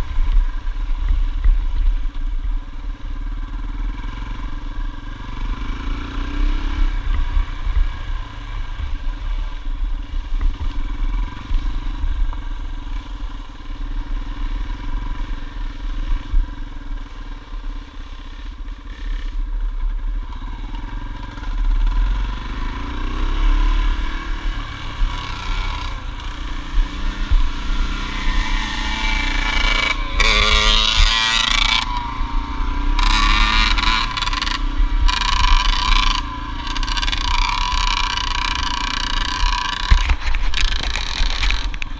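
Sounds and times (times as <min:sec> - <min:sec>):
wind rumble on microphone: 0:00.0 - 0:17.7, 0:23.3 - 0:36.3, 0:39.2 - 0:41.9
dirt bike engines running: 0:00.0 - 0:41.9
two-stroke bike revving past: 0:03.2 - 0:09.6, 0:10.4 - 0:41.9.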